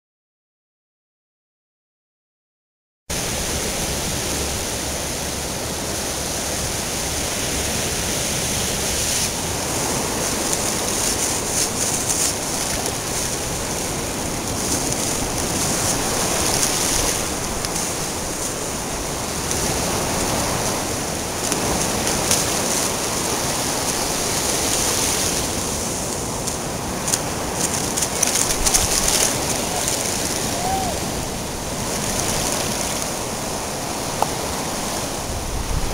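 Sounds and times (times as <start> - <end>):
waves washing onto beach: 3.1 - 35.9.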